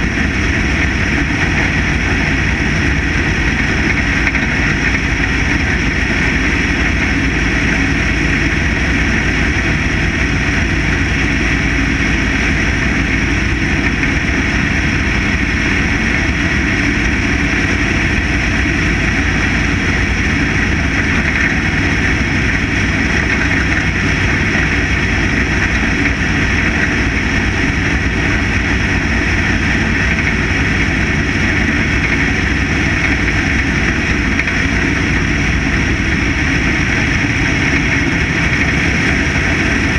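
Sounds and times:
race car engine droning: 0:00.0 - 0:39.9.

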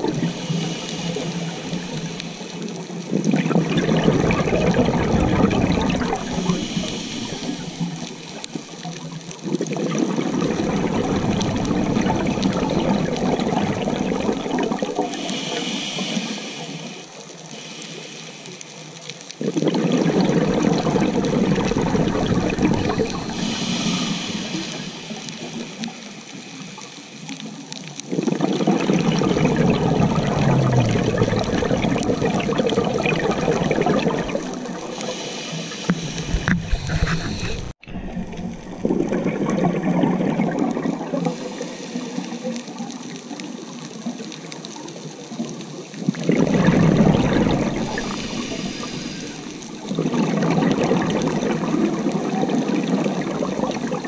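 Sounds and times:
rush of exhaled bubbles: 0:00.0 - 0:17.8, 0:19.4 - 0:54.0
regulator hissing inhale: 0:00.2 - 0:02.7, 0:06.2 - 0:08.7, 0:15.1 - 0:18.9, 0:23.2 - 0:27.4, 0:34.8 - 0:37.8, 0:41.2 - 0:42.8, 0:47.8 - 0:49.8.

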